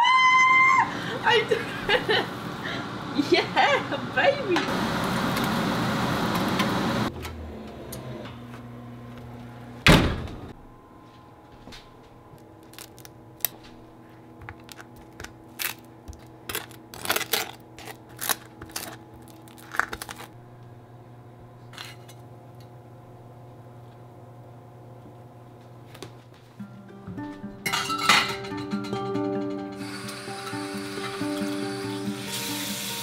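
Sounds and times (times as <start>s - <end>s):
steady low hum: 7.0s - 28.4s
loud thunk: 9.9s - 10.4s.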